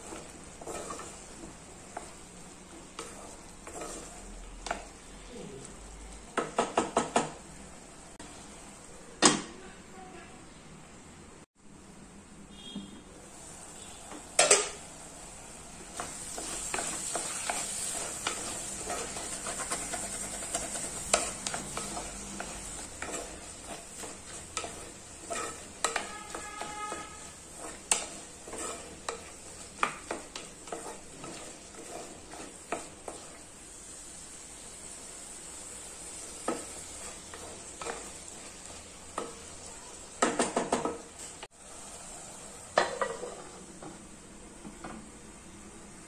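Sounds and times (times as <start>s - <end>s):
spatula stirring and scraping: 0.0s - 7.3s, 15.5s - 43.6s
vegetables sizzling in pot: 0.0s - 9.6s, 12.5s - 46.0s.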